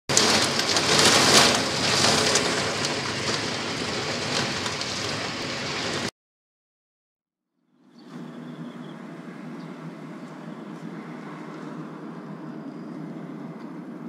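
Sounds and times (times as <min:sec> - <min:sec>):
torrential rain pouring: 0:00.1 - 0:06.1.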